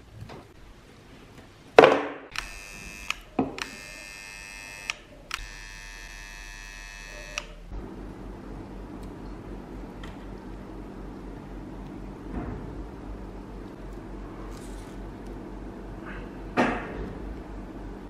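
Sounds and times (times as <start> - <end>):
soldering gun buzzing: 2.3 - 7.7.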